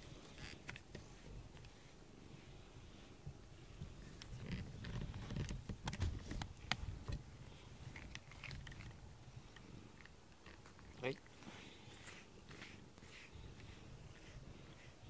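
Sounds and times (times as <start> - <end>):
fur rubbing against microphone: 11.5 - 15.0.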